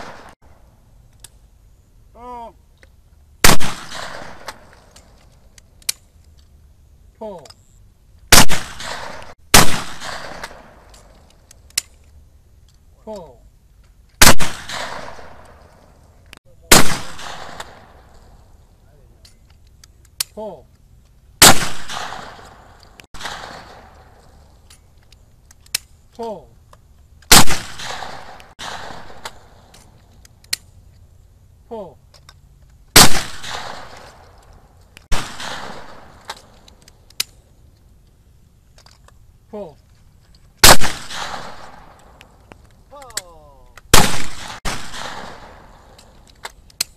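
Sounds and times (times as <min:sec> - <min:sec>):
person shouting: 0:02.2 - 0:02.6, 0:42.9 - 0:43.6
shotgun blast with echo: 0:08.3 - 0:10.6, 0:16.7 - 0:17.8, 0:21.4 - 0:22.4, 0:27.3 - 0:29.2, 0:35.1 - 0:36.1, 0:40.6 - 0:41.8, 0:43.9 - 0:45.6.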